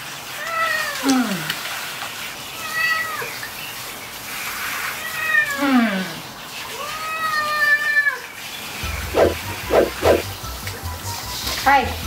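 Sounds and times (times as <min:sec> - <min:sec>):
cat meowing: 0:06.7 - 0:08.2.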